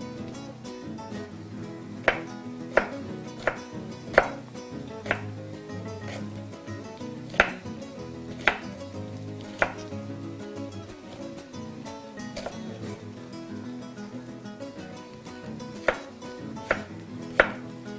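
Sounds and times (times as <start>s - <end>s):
soft background music: 0.0s - 17.9s
knife chopping on wooden board: 2.1s - 4.4s, 5.0s - 5.3s, 7.4s - 7.6s, 8.4s - 8.7s, 9.6s - 9.9s, 15.8s - 17.6s.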